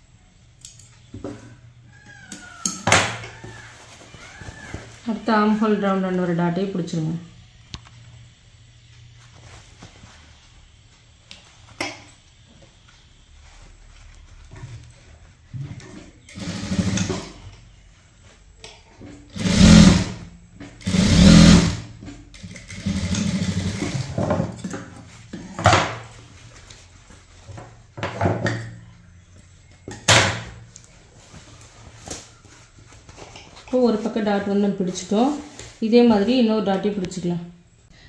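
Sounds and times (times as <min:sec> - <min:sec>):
sewing machine stitching: 0:16.3 - 0:17.4, 0:19.3 - 0:24.2.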